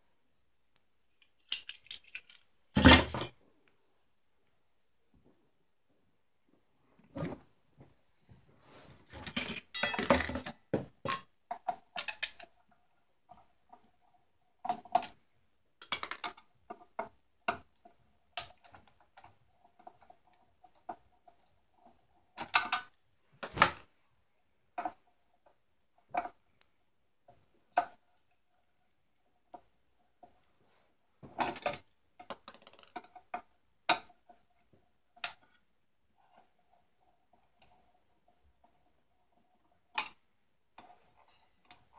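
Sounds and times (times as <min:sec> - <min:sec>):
parts clicking and rattling: 0:01.1 - 0:03.3, 0:09.1 - 0:12.6.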